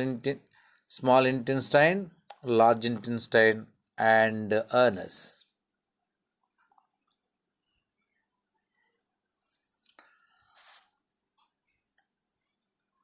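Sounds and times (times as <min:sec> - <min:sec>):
cricket chirping: 0:00.0 - 0:13.0
soft rustle: 0:09.7 - 0:11.0.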